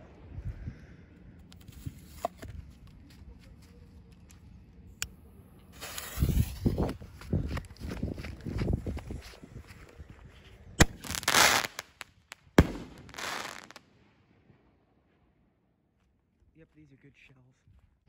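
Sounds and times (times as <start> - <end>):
running footsteps on sand: 6.8 - 10.6.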